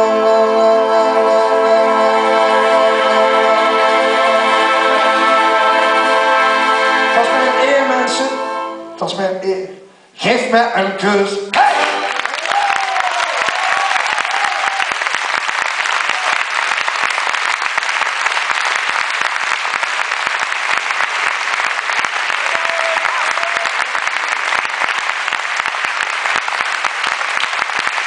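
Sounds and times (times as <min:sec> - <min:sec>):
audience applauding: 0:11.6 - 0:28.0.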